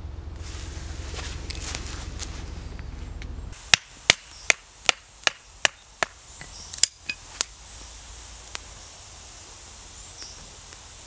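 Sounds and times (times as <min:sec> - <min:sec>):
low rumble: 0:00.0 - 0:06.4.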